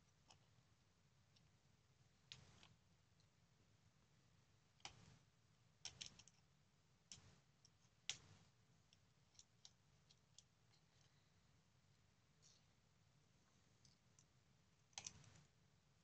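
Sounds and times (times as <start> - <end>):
faint clicks and taps of small parts: 0.0 - 0.5, 2.2 - 3.4, 4.8 - 5.2, 5.8 - 11.2, 13.4 - 15.5.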